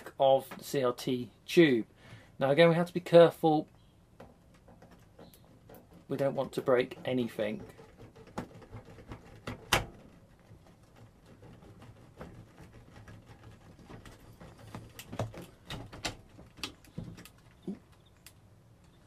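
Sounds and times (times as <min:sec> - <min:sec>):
light clicks and knocks: 0:03.6 - 0:19.0.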